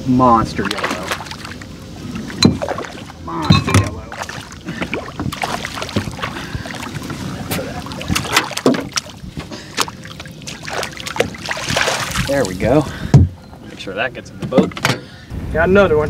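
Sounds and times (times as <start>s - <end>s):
fish splashing at water surface: 0.6s - 3.2s, 3.8s - 12.4s.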